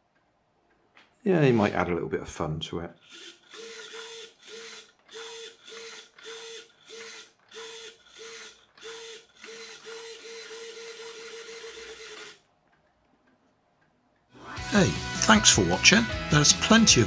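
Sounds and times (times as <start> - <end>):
servo whirring: 3.0 - 12.5.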